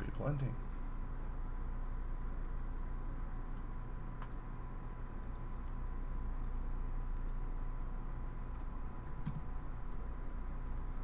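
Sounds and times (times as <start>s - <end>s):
low electrical hum: 0.0s - 11.0s
computer clicks: 2.2s - 2.6s, 5.2s - 5.8s, 6.4s - 7.4s, 8.1s - 9.5s.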